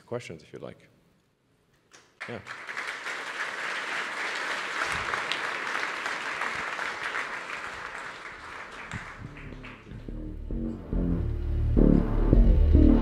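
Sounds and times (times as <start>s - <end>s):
audience applauding: 2.2s - 10.4s.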